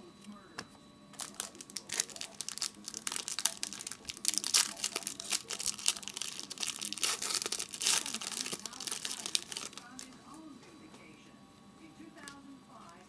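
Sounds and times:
foil wrapper crinkling: 0:01.2 - 0:10.2.

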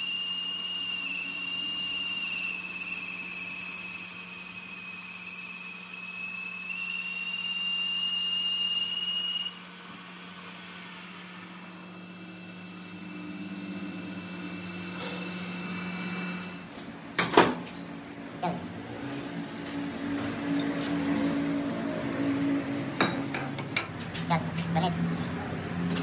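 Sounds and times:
lathe cutting tool squealing: 0:00.0 - 0:09.5.

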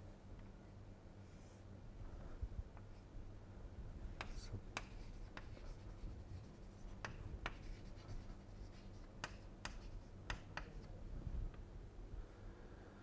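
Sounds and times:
faint low hum: 0:00.0 - 0:13.0
chalk strokes on chalkboard: 0:04.2 - 0:10.9.

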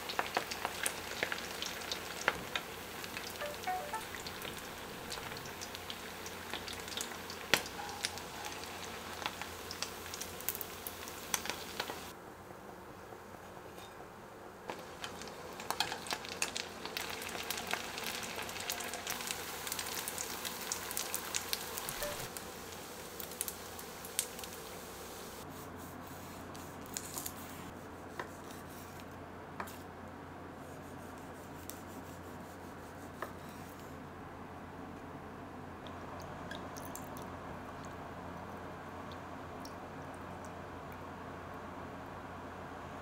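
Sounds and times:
rice patties sizzling in oil: 0:00.0 - 0:12.2, 0:14.7 - 0:25.5.

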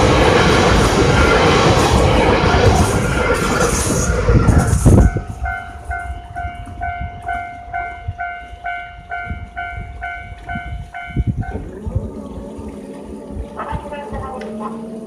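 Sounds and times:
train rushing past: 0:00.0 - 0:15.0
crossing warning bell dinging: 0:04.8 - 0:11.8.

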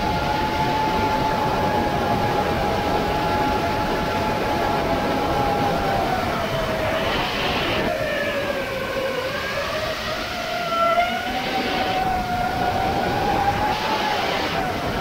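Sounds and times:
drone motors whining: 0:10.6 - 0:15.0.

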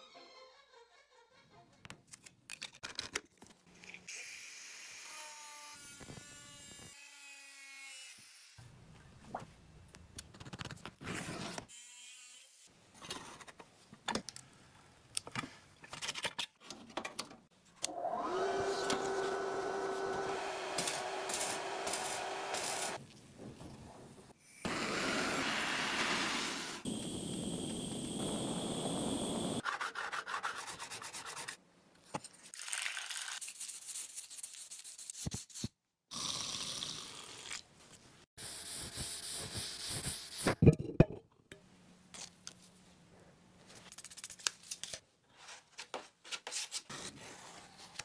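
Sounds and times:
power tool whining: 0:17.9 - 0:23.0
gas torch hissing: 0:20.2 - 0:23.0, 0:24.6 - 0:29.6.

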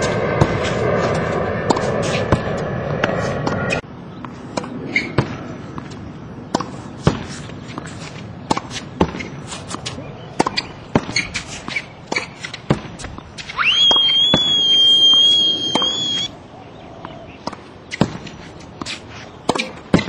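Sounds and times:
racket striking tennis ball: 0:00.0 - 0:03.8, 0:04.5 - 0:14.0, 0:17.4 - 0:20.0
ball bouncing on hard court: 0:10.4 - 0:13.0
high steady whistle tone: 0:13.6 - 0:16.3.

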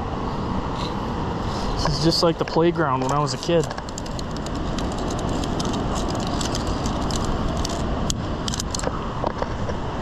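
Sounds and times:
climbing gear clicking on steel cable: 0:03.0 - 0:08.9.

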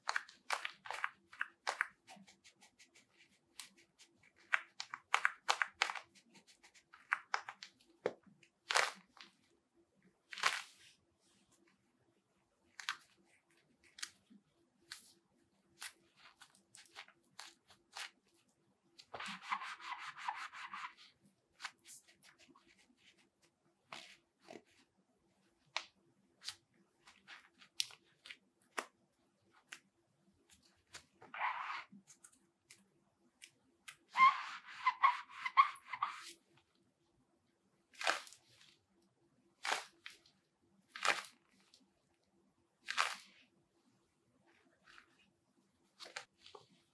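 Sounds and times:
gloves rustling and scraping: 0:00.0 - 0:09.6, 0:12.6 - 0:32.8, 0:33.9 - 0:36.8, 0:37.9 - 0:39.0, 0:39.6 - 0:46.9
scratchy rub of gloves: 0:00.1 - 0:07.8, 0:19.0 - 0:24.9, 0:30.6 - 0:32.2, 0:34.2 - 0:36.4.

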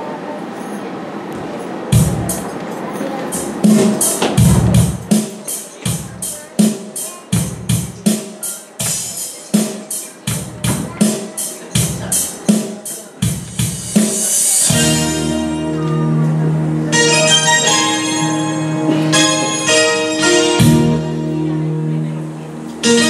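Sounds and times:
sustained keyboard chords: 0:01.3 - 0:23.0
party music with drum beat: 0:02.0 - 0:02.4, 0:03.4 - 0:15.0.

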